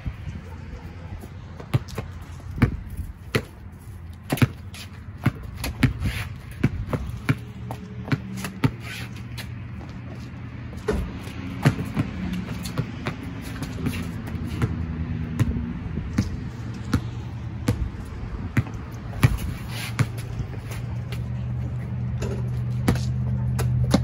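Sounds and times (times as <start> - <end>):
sneakers scuffing: 1.2 - 14.8, 17.7 - 21.7
basketball bouncing on concrete: 1.3 - 21.6, 22.2 - 24.0.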